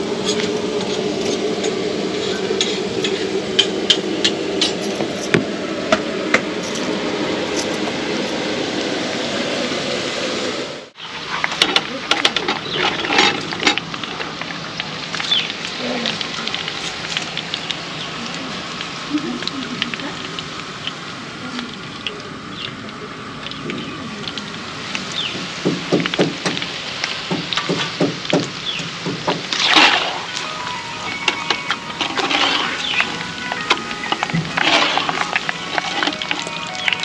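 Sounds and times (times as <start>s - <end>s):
steady hum: 0.0s - 11.0s
food deep-frying in oil: 10.9s - 37.0s
oil crackling and popping: 11.1s - 37.0s.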